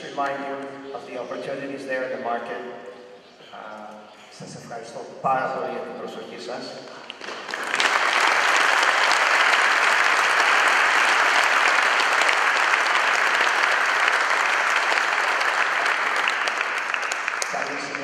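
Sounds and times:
audience applauding: 0:07.0 - 0:18.0.

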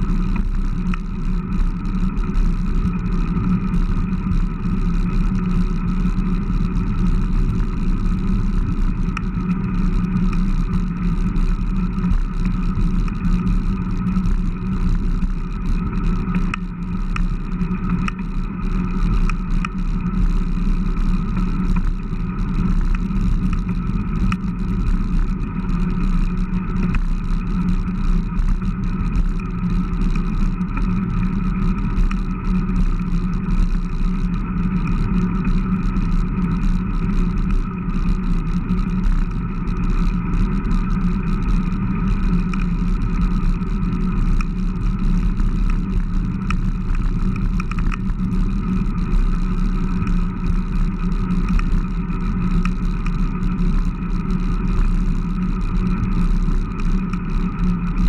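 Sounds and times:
wind and road noise: 0:00.0 - 0:58.0
light ticks: 0:08.7 - 0:09.4, 0:10.1 - 0:10.5, 0:14.2 - 0:20.4, 0:26.0 - 0:27.2, 0:40.0 - 0:58.0.

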